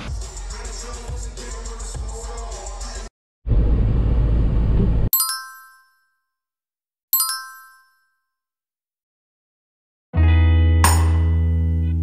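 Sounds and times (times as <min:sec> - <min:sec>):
bass-heavy burst of noise: 0:03.5 - 0:05.1
bright chime dings: 0:05.2 - 0:06.2, 0:07.2 - 0:08.2.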